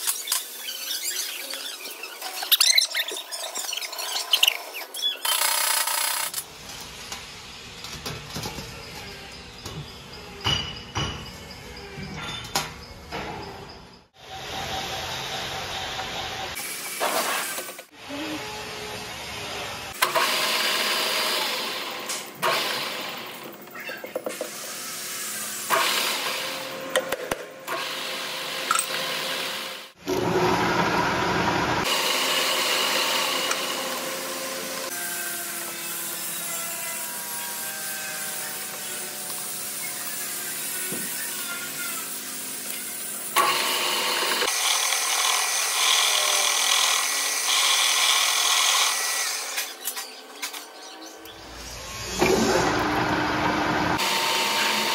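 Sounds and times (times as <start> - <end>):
lathe tool cutting steel: 31.8 - 49.8, 51.7 - 54.9.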